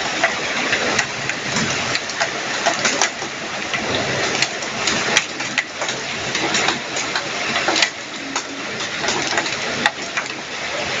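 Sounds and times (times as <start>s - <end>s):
hailstones striking: 0.0s - 11.0s
heavy rain: 0.0s - 11.0s.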